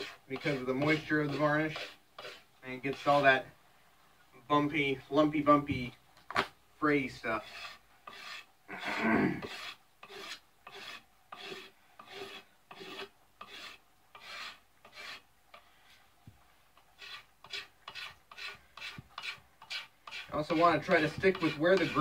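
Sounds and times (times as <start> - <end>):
knife scraping wood: 0.0 - 3.3, 7.3 - 15.8, 16.8 - 22.0.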